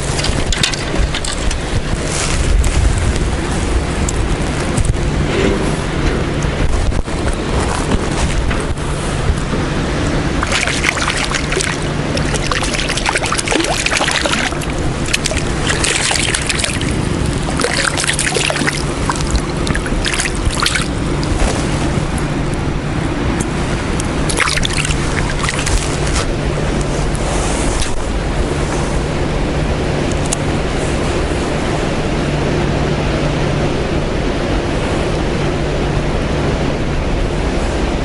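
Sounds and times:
crackling noise: 0:00.0 - 0:22.7, 0:23.4 - 0:28.2
low hum: 0:00.0 - 0:38.0
wind rumble on microphone: 0:00.0 - 0:38.0.

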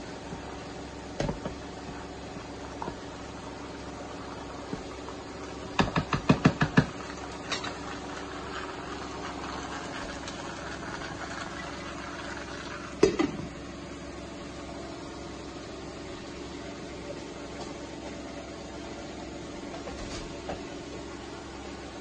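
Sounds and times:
faint sizzle: 0:06.8 - 0:22.0.

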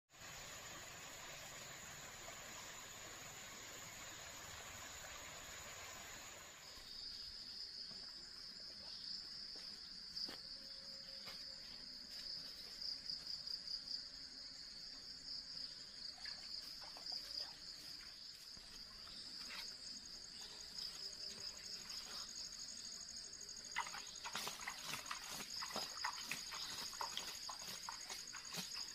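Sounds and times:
stream water flowing: 0:00.1 - 0:06.8, 0:23.7 - 0:28.9
high-pitched insect chorus: 0:00.1 - 0:28.9
rustling in undergrowth: 0:23.8 - 0:28.9.

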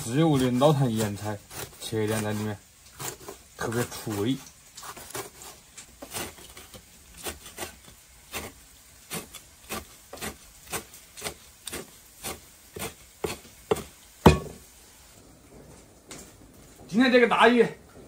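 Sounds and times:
cleaver chopping on wooden block: 0:09.2 - 0:14.6.

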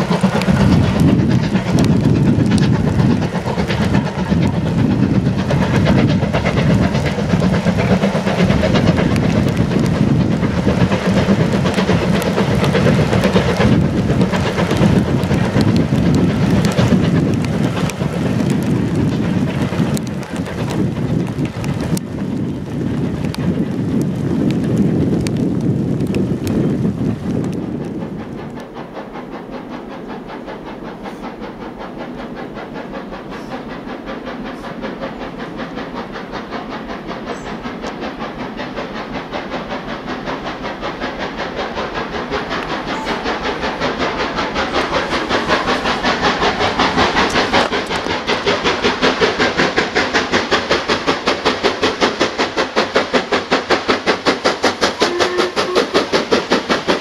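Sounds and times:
steam locomotive exhaust beats: 0:00.0 - 0:57.0.

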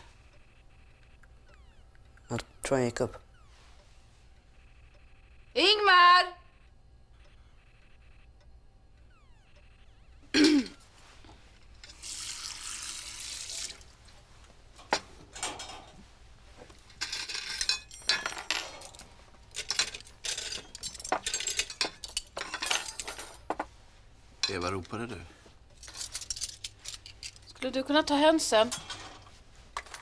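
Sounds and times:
plates and cutlery clinking: 0:16.9 - 0:23.7.

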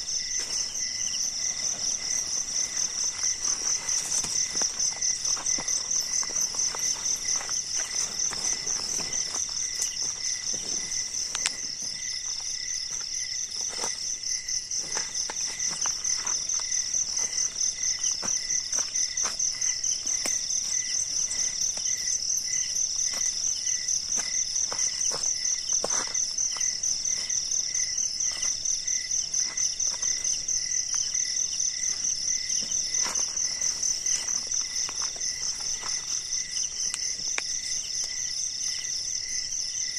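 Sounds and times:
tent rustling and clicks: 0:00.0 - 0:39.0
night insects chirring: 0:00.0 - 0:39.9.

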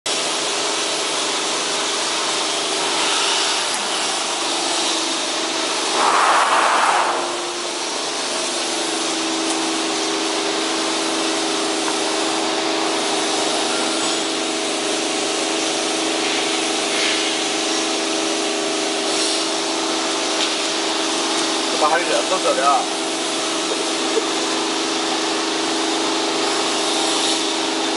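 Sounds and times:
loud rushing noise: 0:05.8 - 0:08.4.

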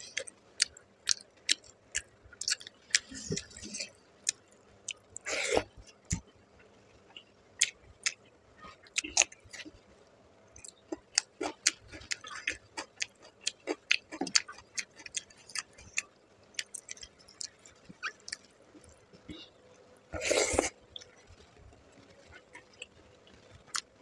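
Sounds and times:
chewing: 0:00.0 - 0:06.3, 0:10.6 - 0:24.0.

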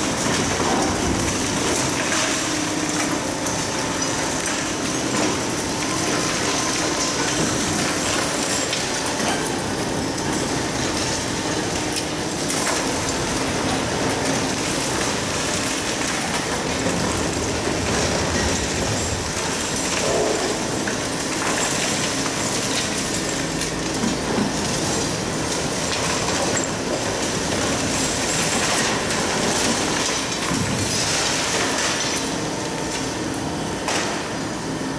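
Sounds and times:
concrete breaking and rubble falling: 0:12.5 - 0:32.3.

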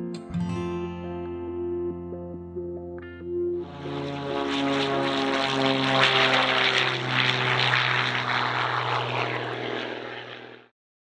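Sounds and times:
propeller plane engines droning: 0:03.3 - 0:10.7.

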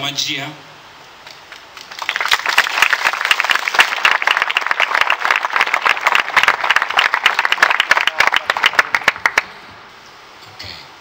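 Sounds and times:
crowd applauding: 0:01.5 - 0:09.5.

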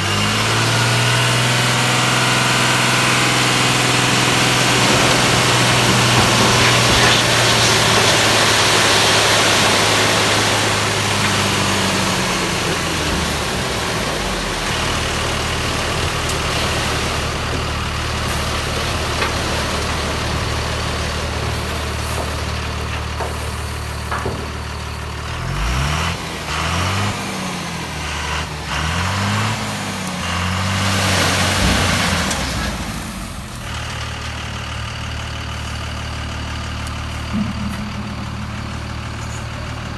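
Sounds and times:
diesel truck engine revving: 0:00.0 - 0:39.9.

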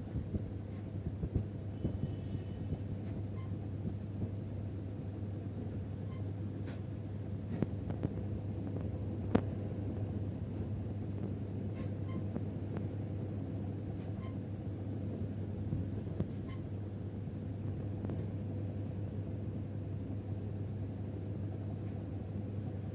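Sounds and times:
low room hum: 0:00.0 - 0:22.9.

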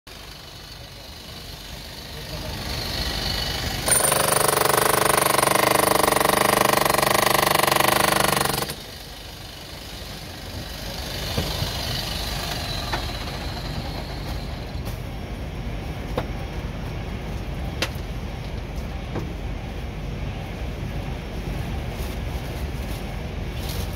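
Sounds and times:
steady background hum: 0:00.1 - 0:23.9
power chipping hammer on stone: 0:02.6 - 0:09.0.

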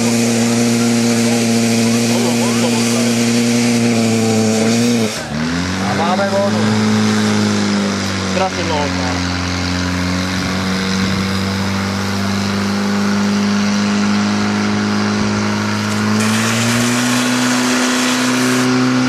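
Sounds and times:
water jets hissing: 0:00.0 - 0:05.3, 0:15.8 - 0:18.7
pump engine running at high revs: 0:00.0 - 0:19.0.

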